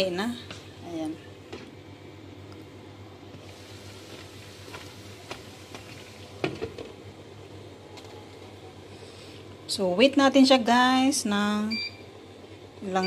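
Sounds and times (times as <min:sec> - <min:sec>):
water bubbling in pan: 0:03.3 - 0:07.1.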